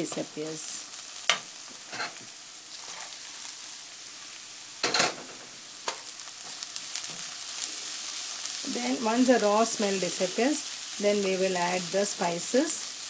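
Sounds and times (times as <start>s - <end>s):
vegetables sizzling in oil: 0.0s - 13.0s
spatula scraping pan: 1.9s - 3.2s.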